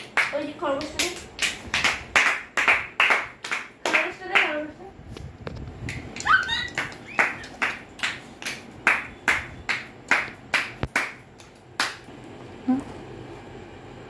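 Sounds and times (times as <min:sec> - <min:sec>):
hands clapping: 0:00.0 - 0:04.6, 0:05.8 - 0:12.1.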